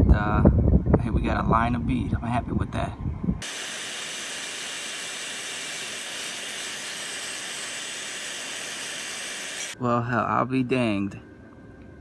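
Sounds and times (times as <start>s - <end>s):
welding arc sizzling hiss: 3.4s - 9.8s.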